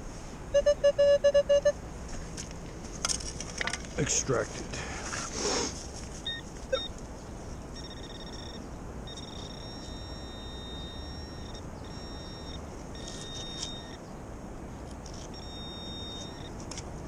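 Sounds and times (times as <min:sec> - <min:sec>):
high buzzing alert: 0:07.8 - 0:14.0.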